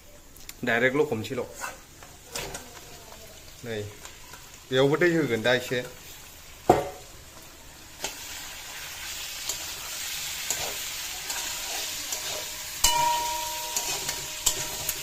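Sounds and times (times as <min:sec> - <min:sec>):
food sizzling in hot oil: 0:00.2 - 0:15.0.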